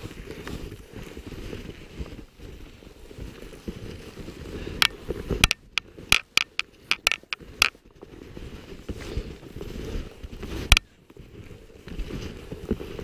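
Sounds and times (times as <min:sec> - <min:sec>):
snowshoe footsteps crunching snow: 0:00.0 - 0:13.0
sharp clicks and snaps: 0:04.8 - 0:07.7.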